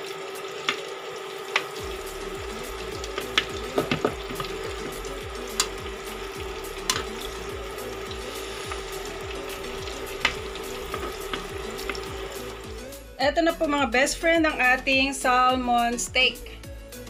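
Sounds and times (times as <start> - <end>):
fish sizzling in a pan: 0.0 - 13.1
utensil clicking against pan: 3.0 - 5.8, 6.8 - 7.4, 8.1 - 12.2.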